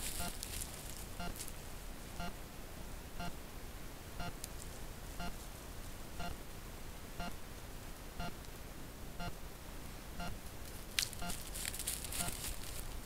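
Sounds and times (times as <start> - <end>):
crackling rustle of animal passing: 0.0 - 1.7, 10.6 - 13.0
low steady hiss: 0.0 - 13.0.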